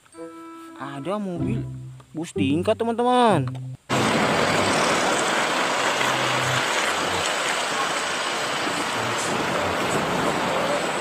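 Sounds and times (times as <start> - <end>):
bus driving past: 3.9 - 11.0
street traffic rushing: 3.9 - 11.0.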